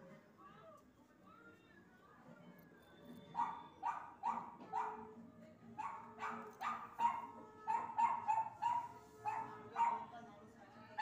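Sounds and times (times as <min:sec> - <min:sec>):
dog barking: 0:03.4 - 0:05.1, 0:05.8 - 0:10.1.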